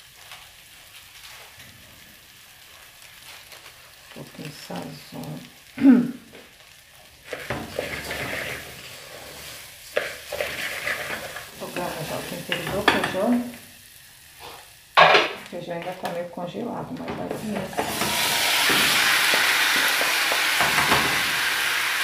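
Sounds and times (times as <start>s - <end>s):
rice sizzling in oil: 0.0s - 22.0s
wooden spoon scraping a pot: 7.2s - 13.3s.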